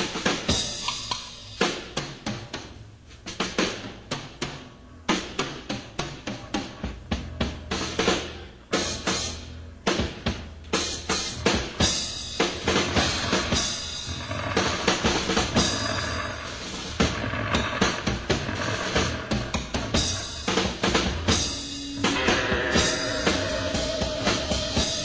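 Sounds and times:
cymbals washing: 0:11.3 - 0:25.0
rock band playing live: 0:19.9 - 0:25.0.

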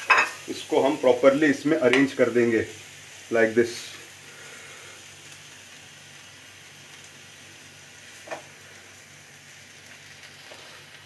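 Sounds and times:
paneer sizzling in oil: 0:00.0 - 0:11.0.

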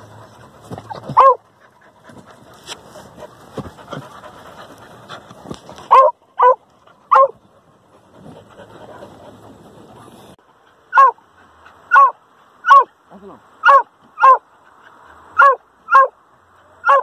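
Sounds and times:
scuffling: 0:00.0 - 0:06.1
dog panting: 0:00.0 - 0:11.9
dog barking: 0:01.0 - 0:01.4, 0:05.9 - 0:07.4, 0:10.9 - 0:11.2, 0:11.9 - 0:12.9, 0:13.6 - 0:14.4, 0:15.4 - 0:16.2.

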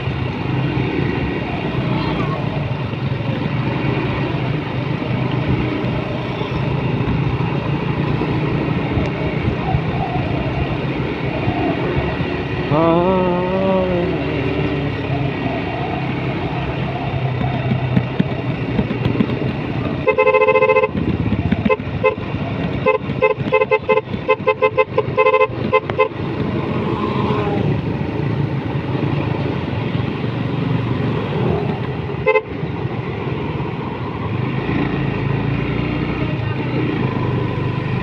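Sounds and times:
motorcycle engine: 0:00.0 - 0:38.0
wind noise: 0:08.6 - 0:12.5, 0:14.7 - 0:24.5
horn honking: 0:20.0 - 0:26.3, 0:32.2 - 0:32.6.

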